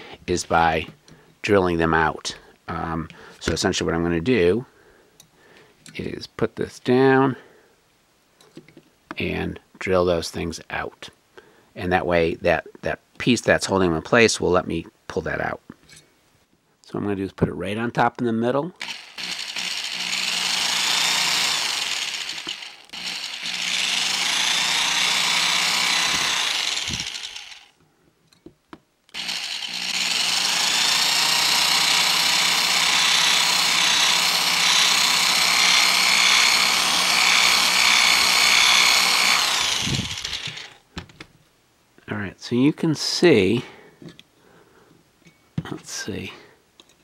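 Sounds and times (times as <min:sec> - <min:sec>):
electric drill whining: 0:18.8 - 0:27.8, 0:29.1 - 0:40.8.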